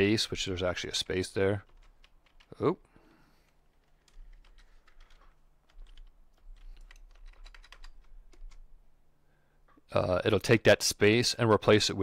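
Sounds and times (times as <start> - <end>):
keyboard keys tapping: 1.6 - 2.5, 3.5 - 8.6.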